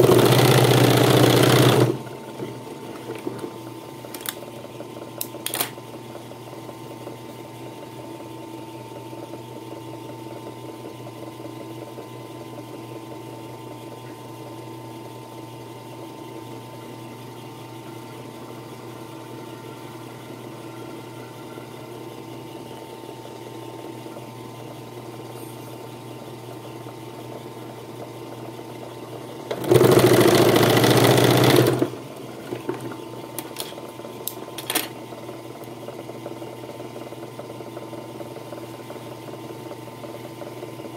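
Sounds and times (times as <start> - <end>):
sewing machine motor humming: 0.0 - 3.3, 29.3 - 33.4.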